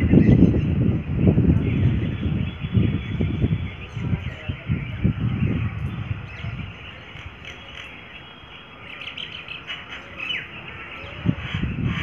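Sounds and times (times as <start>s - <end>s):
low rumble on microphone: 0.0s - 7.7s, 10.9s - 12.0s.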